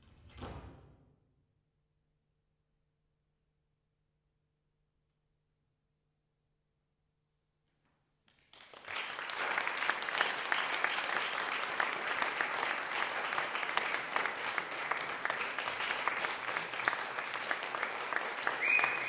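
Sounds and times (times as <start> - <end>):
audience applause: 8.4 - 19.0.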